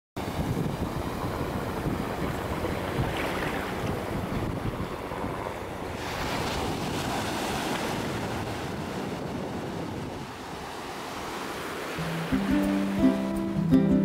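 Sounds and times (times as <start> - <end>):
surf waves washing on sand: 0.2 - 14.0.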